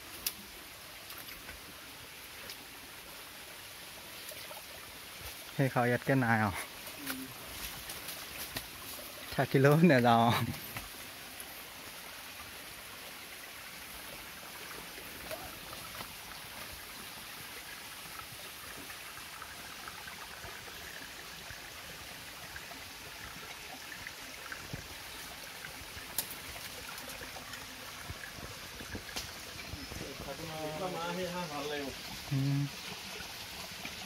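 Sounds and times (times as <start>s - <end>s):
stream running over rocks: 0.0s - 34.0s.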